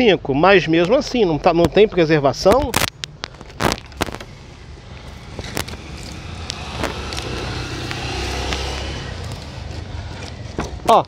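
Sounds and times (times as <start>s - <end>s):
wood cracking as broken by hand: 2.5s - 4.3s
car passing: 4.0s - 10.6s.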